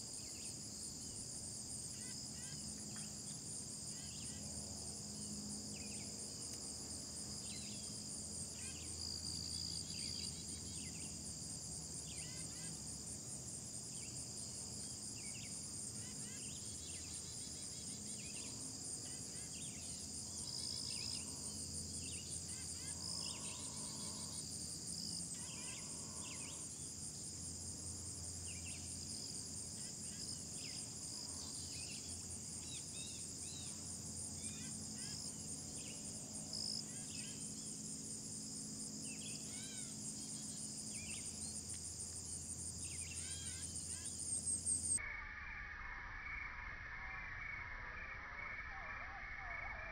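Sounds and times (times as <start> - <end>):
insect chorus trilling: 0.0 - 49.9
short insect chirps: 42.8 - 49.9.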